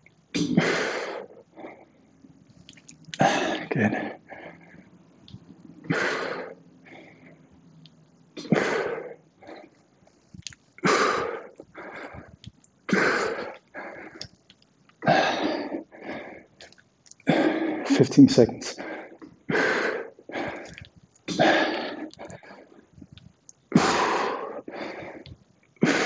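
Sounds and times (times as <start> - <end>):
man breathing hard: 0.6 - 2.0, 3.2 - 5.0, 5.8 - 7.5, 10.8 - 14.2, 15.0 - 16.5, 18.7 - 22.8, 23.7 - 26.0.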